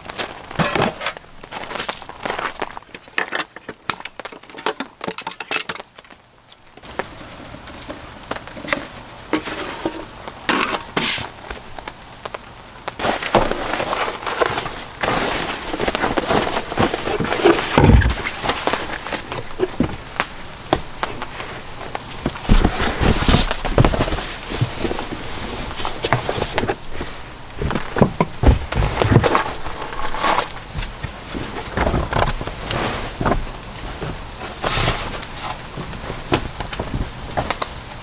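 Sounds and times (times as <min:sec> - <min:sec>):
fabric bags and mats rustling: 0:13.0 - 0:37.6.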